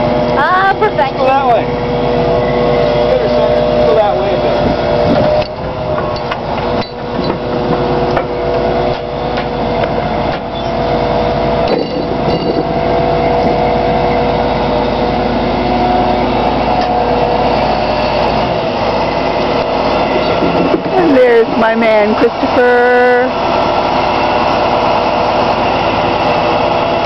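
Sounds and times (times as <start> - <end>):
crane engine and hydraulic whine: 0.0 - 27.0
metal knocks and clanks: 5.1 - 10.8, 11.6 - 12.8.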